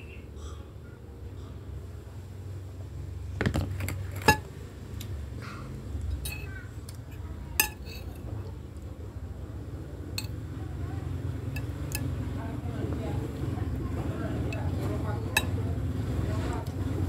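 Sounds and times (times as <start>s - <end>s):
metal spoon scraping a plate: 6.2s - 6.5s, 7.6s - 8.2s.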